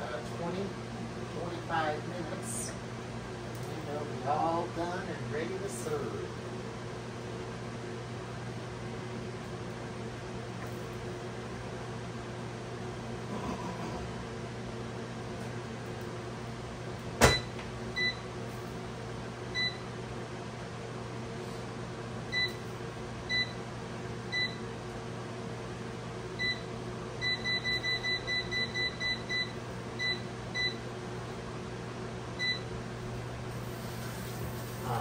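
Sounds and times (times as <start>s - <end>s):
steady low hum: 0.0s - 35.0s
air fryer beeps: 17.2s - 18.3s, 19.5s - 20.0s, 22.3s - 23.6s, 24.3s - 24.7s, 26.4s - 30.9s, 32.4s - 32.7s.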